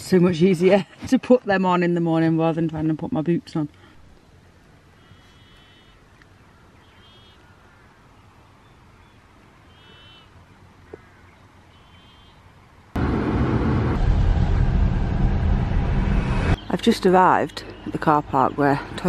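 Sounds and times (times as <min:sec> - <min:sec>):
bird chirping: 0:05.0 - 0:12.4, 0:16.6 - 0:19.0
car noise with low rumble: 0:13.0 - 0:18.8.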